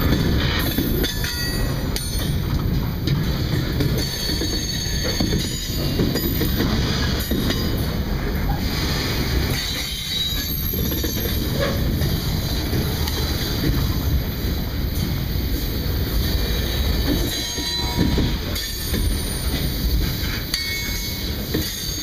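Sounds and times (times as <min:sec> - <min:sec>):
train wheels rumbling on rails: 0:00.0 - 0:22.0
high wheel squeal: 0:09.6 - 0:11.9.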